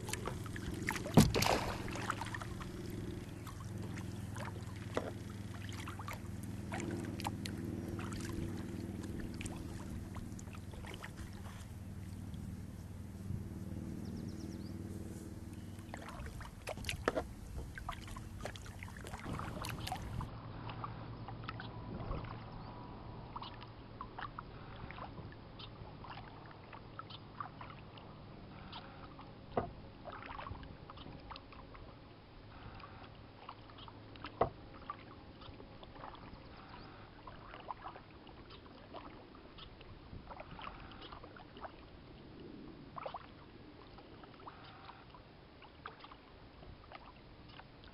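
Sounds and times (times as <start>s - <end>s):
water dripping and splashing: 0.0s - 12.4s, 15.8s - 20.3s
kayak paddle strokes: 0.0s - 13.0s, 15.1s - 20.9s, 32.6s - 41.8s
low steady hum: 0.0s - 47.9s.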